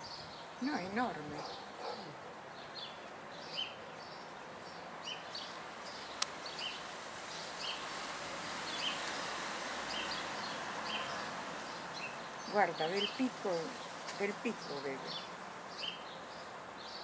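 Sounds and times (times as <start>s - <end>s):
small birds chirping: 0.0s - 17.0s
water trickling from a hose: 5.1s - 16.9s.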